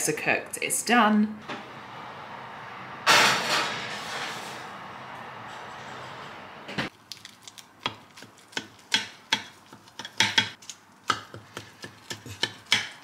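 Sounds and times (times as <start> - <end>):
knife knocking and scraping dish: 8.2 - 10.6.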